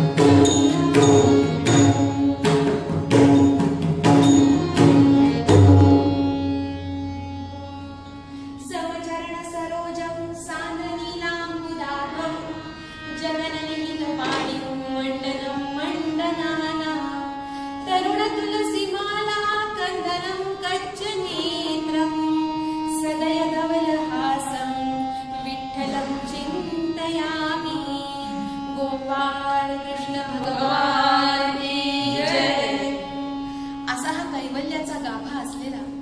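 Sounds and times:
tabla stroke: 0.0 - 6.6
harmonium drone: 0.0 - 36.0
woman singing: 13.1 - 33.3.

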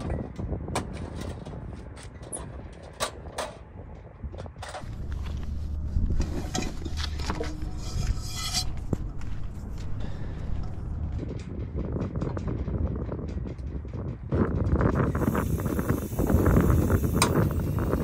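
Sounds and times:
low steady hum: 4.7 - 12.7.

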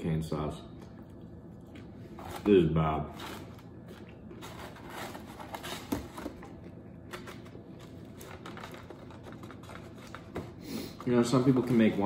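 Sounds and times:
soft eating sounds: 0.4 - 4.5.

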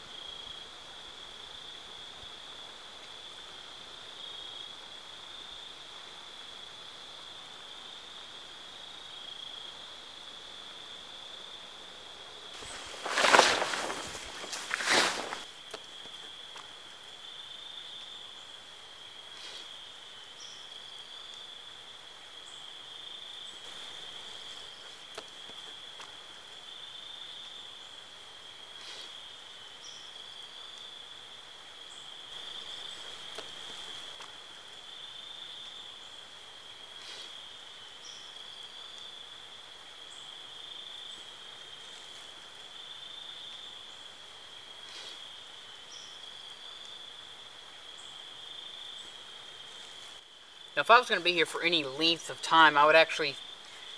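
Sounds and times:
insect chorus trilling: 0.0 - 53.9
faint ticks: 15.6 - 17.0, 25.0 - 26.4, 33.0 - 34.7, 46.8 - 47.0.

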